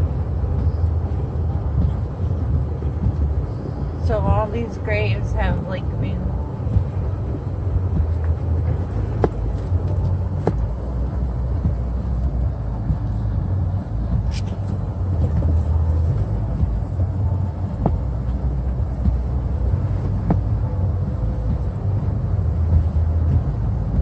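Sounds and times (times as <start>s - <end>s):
car engine and tyres rumbling: 0.0s - 24.0s.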